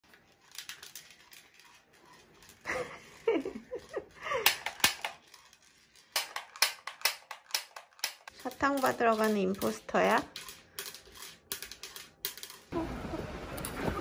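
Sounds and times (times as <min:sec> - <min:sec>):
sharp clicks and taps: 0:06.1 - 0:09.8.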